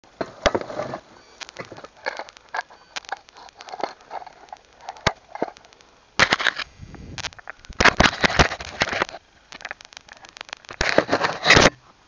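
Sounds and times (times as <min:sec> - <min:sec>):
rustling: 0:00.1 - 0:12.0
objects clicking in wooden box: 0:01.4 - 0:06.6.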